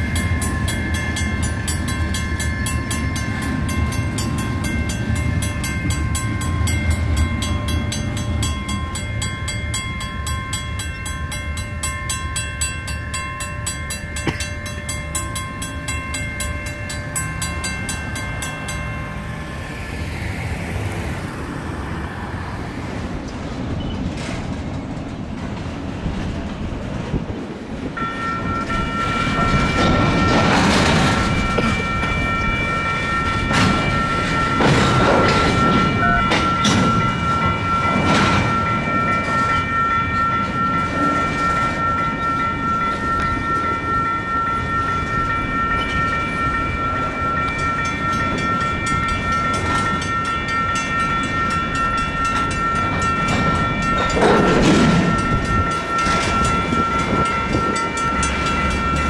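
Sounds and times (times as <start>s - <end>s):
crossing bell ringing: 0.0s - 23.9s, 27.8s - 59.0s
train rumbling past: 0.0s - 59.0s.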